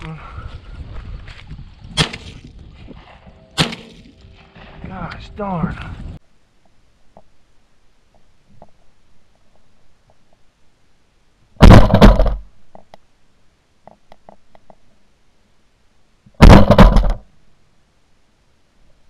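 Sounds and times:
shotgun shots: 0:02.0 - 0:02.4, 0:03.6 - 0:04.0, 0:11.6 - 0:12.4, 0:16.4 - 0:17.2.

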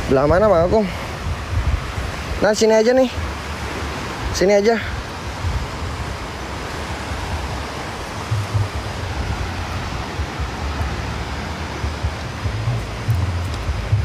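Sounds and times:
ocean surf rushing: 0:00.0 - 0:14.0
wind buffeting the microphone: 0:00.0 - 0:14.0.

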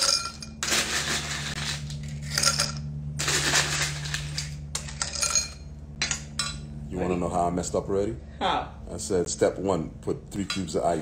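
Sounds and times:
ice cubes clinking into glass: 0:00.0 - 0:05.6.

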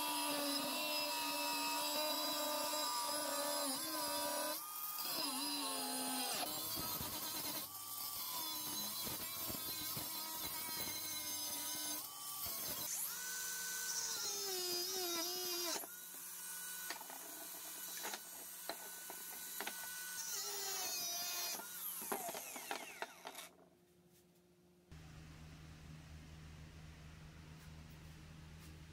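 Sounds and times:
angle grinder cutting metal: 0:00.0 - 0:23.5
grinder disc whining: 0:16.8 - 0:23.6.

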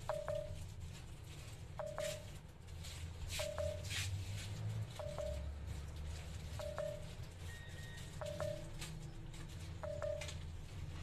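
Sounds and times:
phone alert beep: 0:00.0 - 0:00.6, 0:01.8 - 0:02.3, 0:03.4 - 0:03.9, 0:05.0 - 0:05.5, 0:06.6 - 0:08.8, 0:09.8 - 0:10.4.

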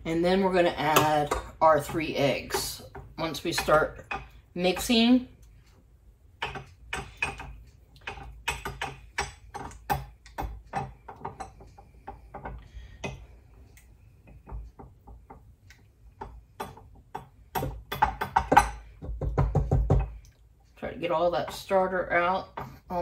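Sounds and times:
spoon tapping and scraping cup: 0:06.4 - 0:13.2.

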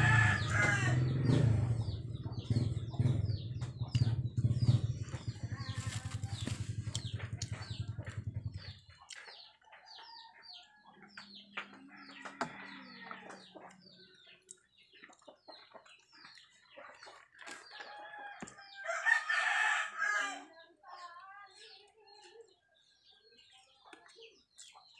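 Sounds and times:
rooster crowing: 0:00.0 - 0:01.0, 0:12.0 - 0:13.4, 0:17.8 - 0:20.5
low pulsing hum: 0:00.0 - 0:09.0
chickens chirping: 0:00.0 - 0:24.9.

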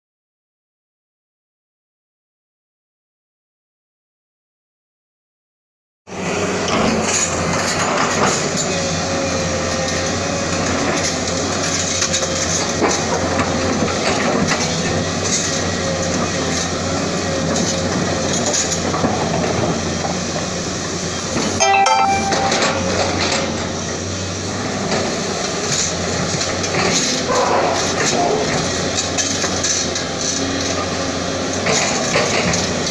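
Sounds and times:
excavator diesel engine running: 0:06.1 - 0:21.5
brief high tone: 0:21.6 - 0:23.2.

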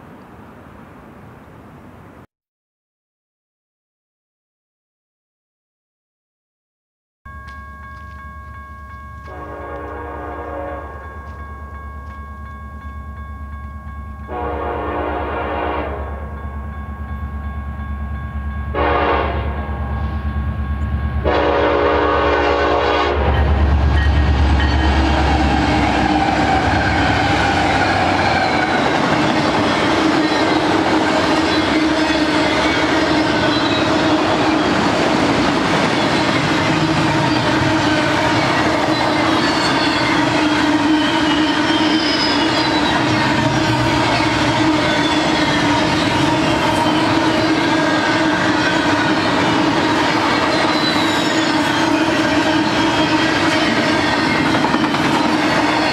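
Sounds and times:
train cars rumbling and clattering: 0:07.4 - 0:55.9
locomotive horn signal: 0:09.2 - 0:11.4, 0:14.2 - 0:16.4, 0:18.7 - 0:20.3, 0:21.2 - 0:23.6, 0:36.3 - 0:49.6, 0:50.4 - 0:54.2.

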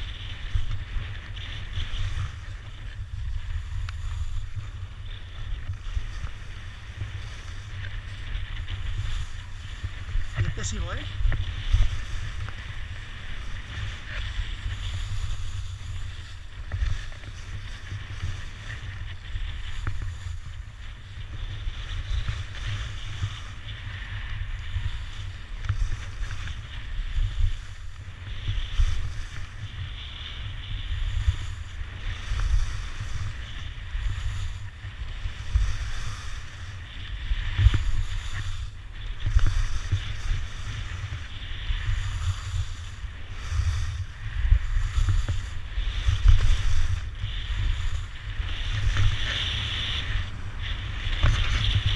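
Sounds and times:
skis scraping on packed snow: 0:00.0 - 0:51.9
wind buffeting microphone: 0:00.0 - 0:51.9.

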